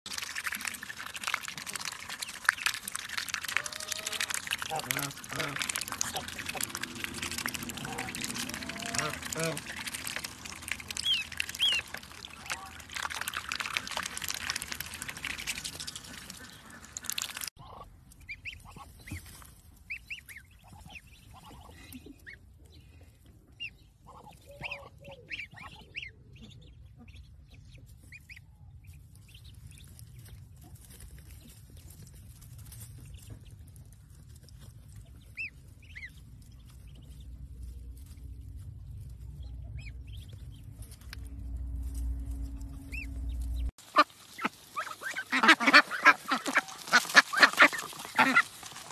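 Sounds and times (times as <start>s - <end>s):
water splashing: 0.1s - 17.5s, 42.9s - 48.9s
ducklings peeping: 0.2s - 41.2s, 42.3s - 48.9s
low rumble: 3.6s - 16.4s, 28.5s - 43.8s.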